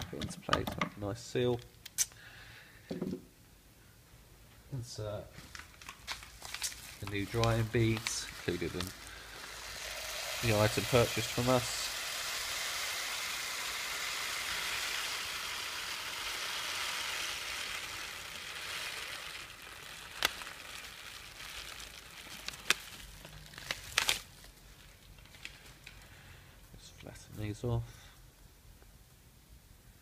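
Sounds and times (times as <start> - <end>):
beads pouring with granular hiss: 5.5 - 26.5.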